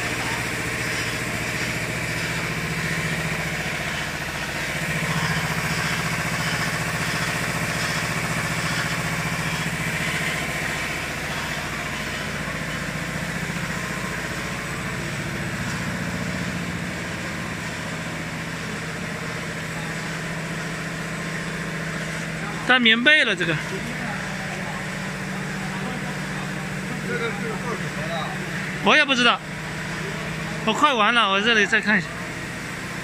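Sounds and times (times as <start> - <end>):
machine drone with hiss: 0.0 - 33.0.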